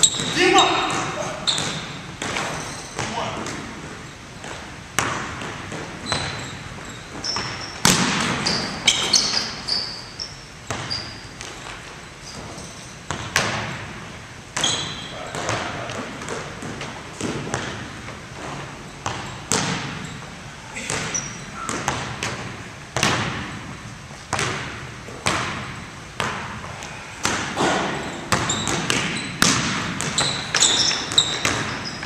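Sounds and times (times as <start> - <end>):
sneakers squeaking: 0.0 - 32.0
basketball bouncing on hardwood: 7.2 - 9.0, 10.7 - 11.5, 14.6 - 20.1, 20.8 - 23.5, 24.3 - 26.5, 28.3 - 32.0.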